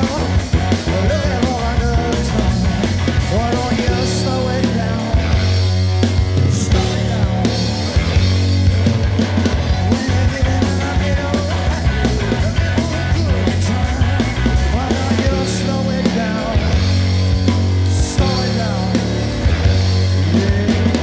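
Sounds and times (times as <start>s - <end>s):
drums: 0.0s - 21.0s
electric bass: 0.0s - 21.0s
electric guitar: 0.0s - 21.0s.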